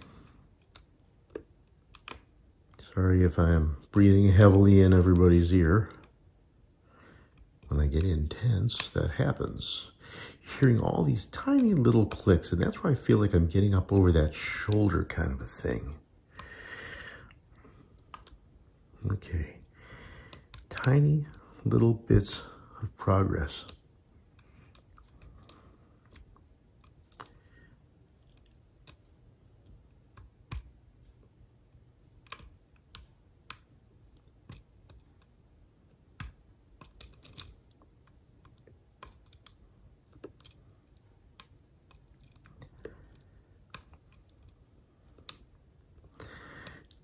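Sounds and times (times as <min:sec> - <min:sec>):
lock pick scratching: 0:36.2 - 0:37.6
lock pick clicking: 0:36.2 - 0:37.7.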